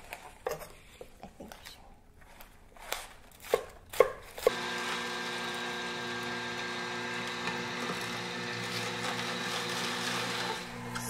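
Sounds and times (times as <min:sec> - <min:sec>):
electric juicer motor running: 0:04.5 - 0:11.0.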